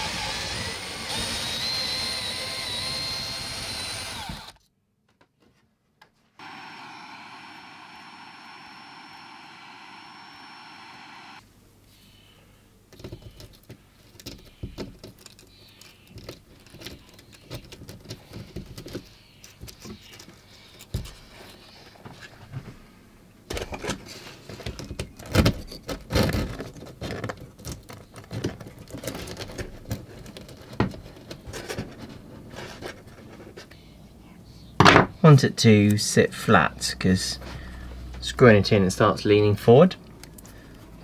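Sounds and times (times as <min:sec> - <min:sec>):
scratching and clicks of handling: 0:12.9 - 0:22.6, 0:23.5 - 0:33.8.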